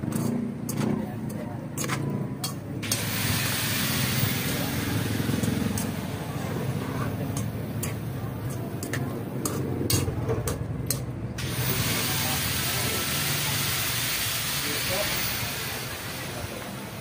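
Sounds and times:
metal spoon scraping cooking pot: 0.0s - 3.1s.

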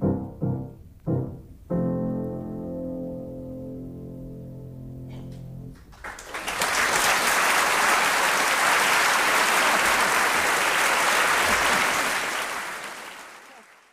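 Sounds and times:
audience applauding: 5.8s - 13.9s.

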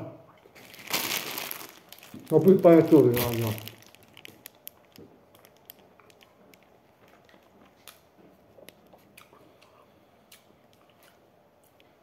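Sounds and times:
chewing clicks and smacks: 4.2s - 12.0s.

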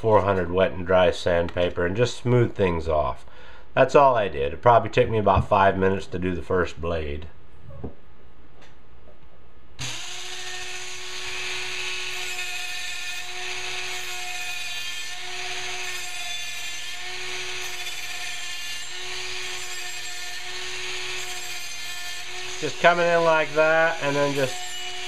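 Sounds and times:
rotary tool sanding metal: 9.8s - 25.0s.

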